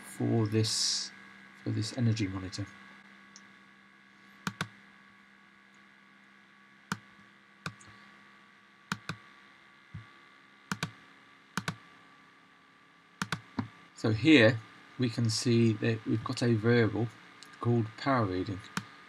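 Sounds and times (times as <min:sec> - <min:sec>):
faint steady hum: 0:00.0 - 0:19.0
computer mouse clicking: 0:04.5 - 0:04.7, 0:08.9 - 0:09.2, 0:10.7 - 0:11.0, 0:11.6 - 0:11.8, 0:13.2 - 0:13.7.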